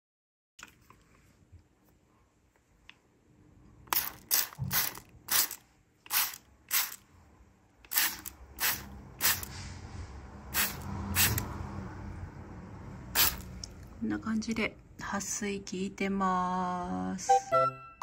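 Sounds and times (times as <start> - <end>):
spray bottle hissing mist: 3.9 - 7.0, 7.9 - 9.6, 10.6 - 11.4, 13.2 - 13.5.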